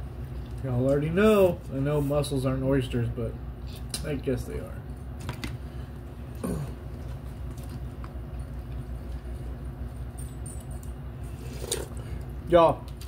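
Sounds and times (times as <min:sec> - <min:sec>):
steady low hum: 0:00.0 - 0:13.0
quiet chewing: 0:06.4 - 0:09.6.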